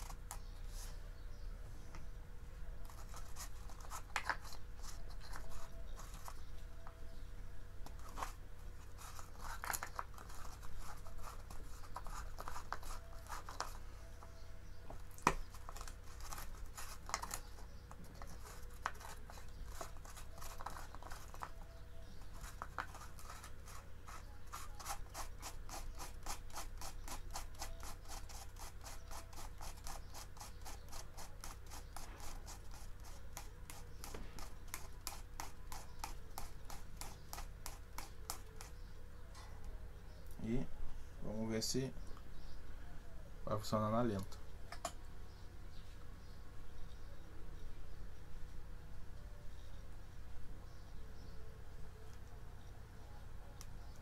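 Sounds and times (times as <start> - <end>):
hands scraping plastic fan blade: 7.9 - 13.8, 15.3 - 21.6, 22.2 - 38.8.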